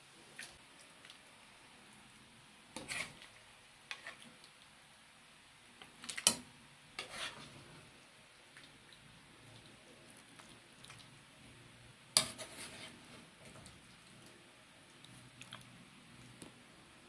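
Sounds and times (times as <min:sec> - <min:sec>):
spoon scraping and clinking dishes: 0:12.2 - 0:13.0.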